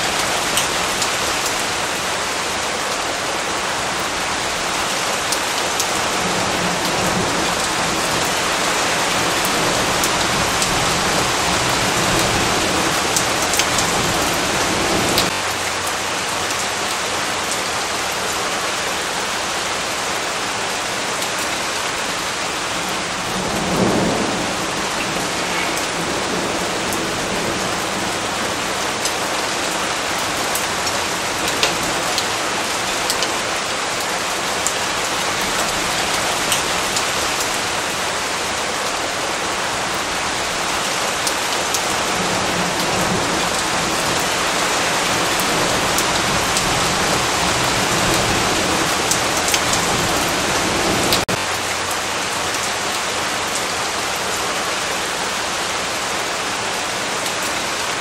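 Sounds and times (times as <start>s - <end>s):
heavy rain: 0.0s - 58.0s
raindrops ticking: 6.8s - 18.4s, 23.5s - 27.9s, 28.8s - 33.4s, 42.8s - 50.1s, 51.0s - 52.8s
thunder rumble: 22.6s - 30.8s.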